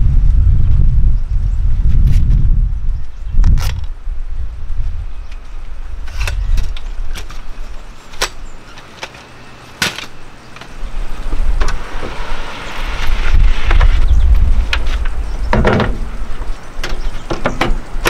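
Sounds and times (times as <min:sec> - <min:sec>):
wind rumbling on microphone: 0:00.0 - 0:08.7, 0:10.2 - 0:18.0
folding chair clicks and knocks: 0:08.1 - 0:10.8, 0:14.7 - 0:16.1, 0:16.8 - 0:18.0.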